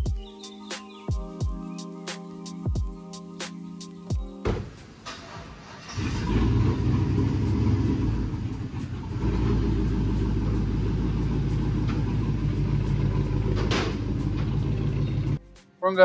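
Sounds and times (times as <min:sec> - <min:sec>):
engine running with low rumble: 0:05.0 - 0:15.4.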